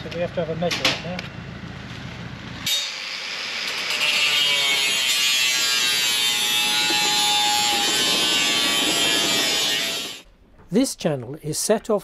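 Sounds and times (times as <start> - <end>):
angle grinder cutting steel: 2.7 - 10.2.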